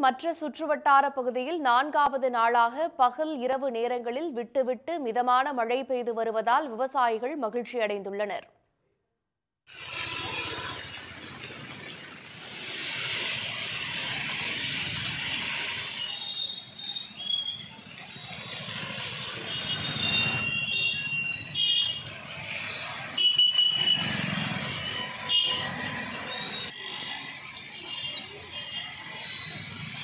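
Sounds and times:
rain hissing: 0:09.7 - 0:16.6
small vehicle engines running: 0:09.7 - 0:20.6, 0:22.2 - 0:30.0.

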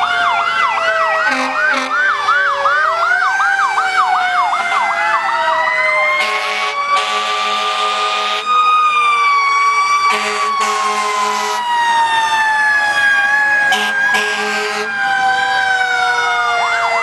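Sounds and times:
fire engine siren: 0:00.0 - 0:17.0
air horn blasts: 0:01.3 - 0:02.0, 0:06.2 - 0:08.5, 0:10.1 - 0:11.6, 0:13.7 - 0:15.0.

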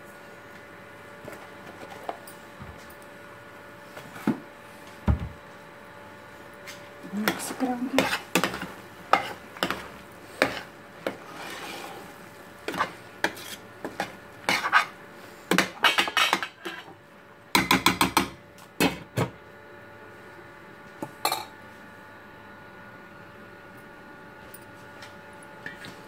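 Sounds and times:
spoon stirring and scraping pot: 0:07.2 - 0:16.9.

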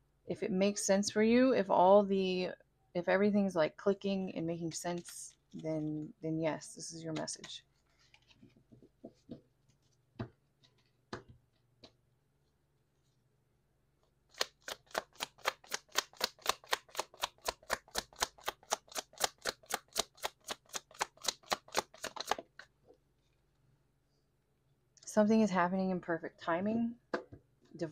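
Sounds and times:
cards being shuffled: 0:07.1 - 0:10.0, 0:10.6 - 0:12.0, 0:14.3 - 0:22.7.

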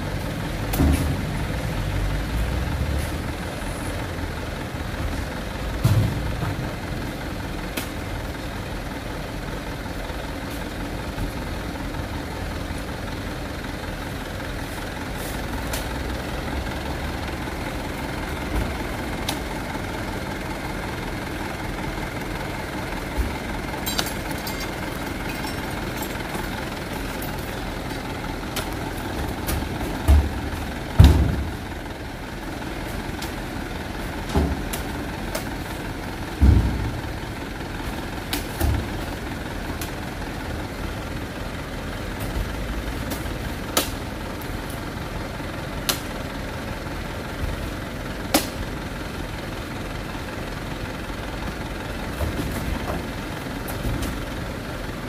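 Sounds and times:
diesel truck idling: 0:00.0 - 0:55.0
fruit bunches thudding into truck bed: 0:29.1 - 0:31.6, 0:36.2 - 0:37.0.

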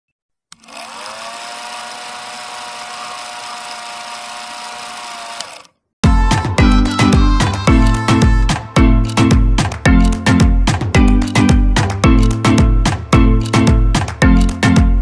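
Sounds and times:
film projector motor whirring: 0:00.5 - 0:05.8
loud music with strong beat: 0:06.0 - 0:15.0.

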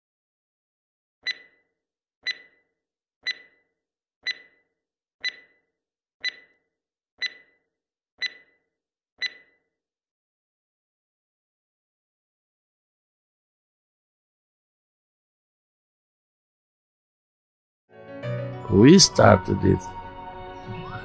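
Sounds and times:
timer ticks with ringing tone: 0:01.2 - 0:09.7.

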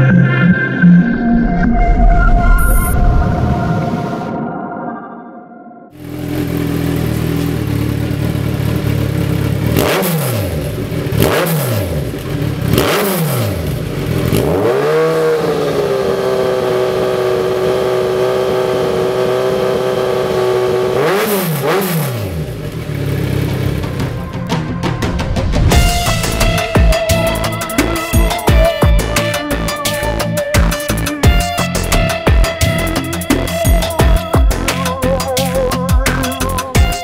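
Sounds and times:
motorcycle engine idling and revving: 0:05.9 - 0:37.0.

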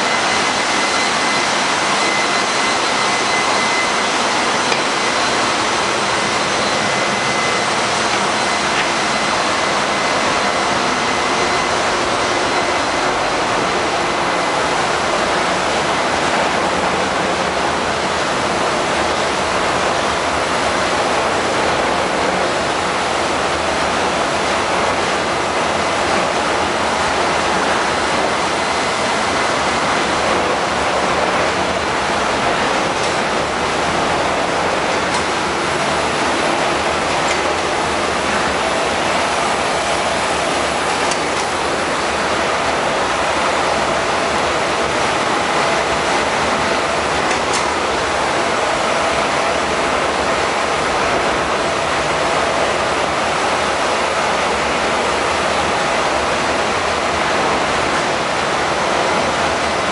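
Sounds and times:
faint high whine: 0:00.0 - 0:19.3
machinery roaring: 0:00.0 - 0:59.8.

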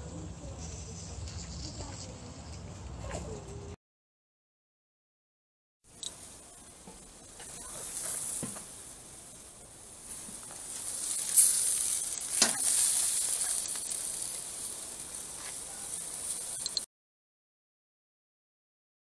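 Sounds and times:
steaks sizzling on a grill: 0:06.0 - 0:16.9.

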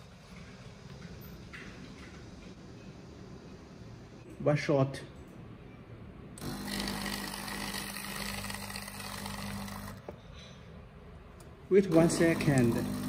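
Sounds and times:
espresso machine pump humming: 0:06.4 - 0:10.1, 0:11.9 - 0:13.0.

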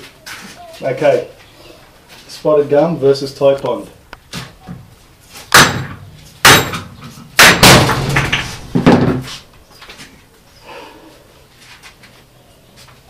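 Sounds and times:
hammer striking wooden joint: 0:05.5 - 0:09.2.

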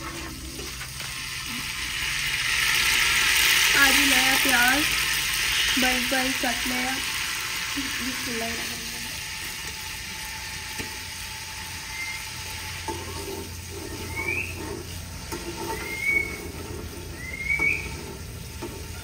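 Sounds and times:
onion sizzling in hot fat: 0:00.0 - 0:19.0
short rising squeaks: 0:11.8 - 0:18.3
ladle scraping a steel pot: 0:12.7 - 0:19.0.

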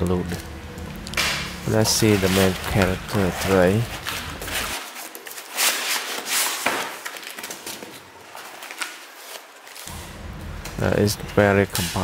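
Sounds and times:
cardboard and foam rustling: 0:01.7 - 0:09.9.

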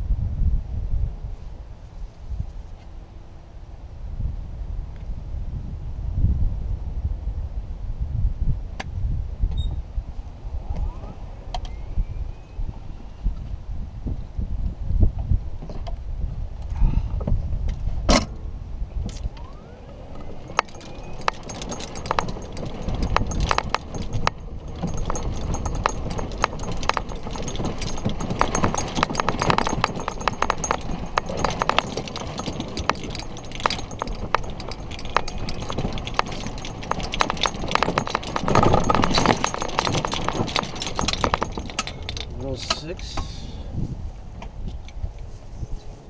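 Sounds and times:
golf cart low rumble: 0:08.5 - 0:46.0
golf cart rattling and clicking: 0:19.0 - 0:43.5.

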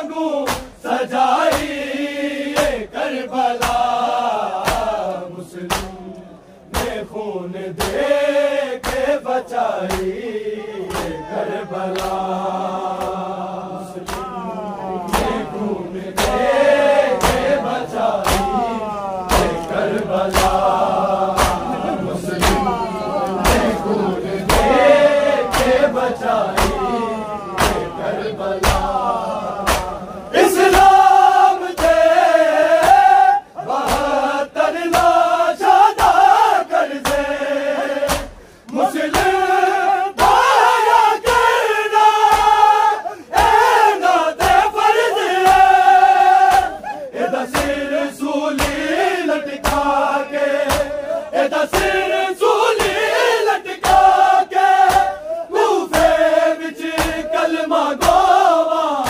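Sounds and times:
men chanting together: 0:00.0 - 0:59.0
hands beating chests: 0:00.5 - 0:00.8, 0:04.6 - 0:05.0, 0:05.7 - 0:06.0, 0:06.7 - 0:07.1, 0:07.7 - 0:08.1, 0:08.8 - 0:09.2, 0:09.8 - 0:10.2, 0:10.9 - 0:11.3, 0:14.0 - 0:27.0, 0:27.6 - 0:28.0, 0:28.6 - 0:30.0, 0:33.8 - 0:34.2, 0:38.0 - 0:39.5, 0:42.2 - 0:42.7, 0:43.4 - 0:44.8, 0:45.4 - 0:47.9, 0:48.5 - 0:52.1, 0:52.7 - 0:53.1, 0:53.8 - 0:55.2, 0:55.9 - 0:57.3, 0:58.0 - 0:58.4.

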